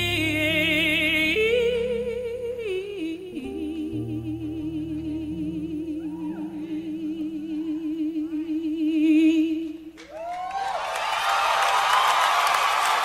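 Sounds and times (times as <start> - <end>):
soft sustained accompaniment: 0.0 - 9.9
woman singing long note: 0.0 - 9.9
audience applause: 10.0 - 13.0.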